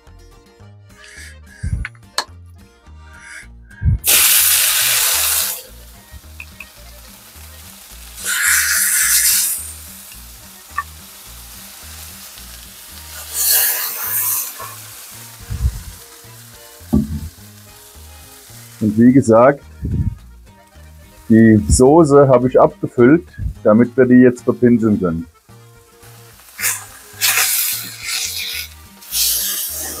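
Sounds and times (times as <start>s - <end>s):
meat sizzling on hot plate: 4.0s - 21.3s, 25.3s - 30.0s.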